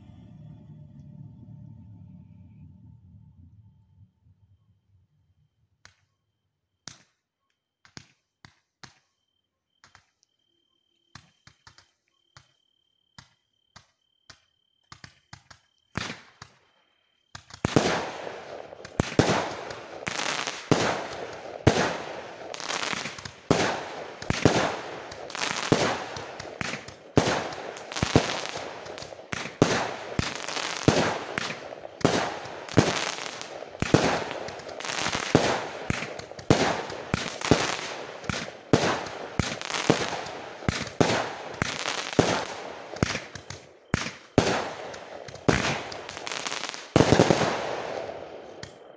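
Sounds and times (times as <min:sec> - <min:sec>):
faint firework pops: 0:06.8 - 0:07.2, 0:07.8 - 0:09.1, 0:13.2 - 0:16.6, 0:17.3 - 0:18.1, 0:18.7 - 0:47.7, 0:48.5 - 0:48.9
firework shell bursts: 0:17.4 - 0:47.6
firework crackling: 0:17.4 - 0:48.9.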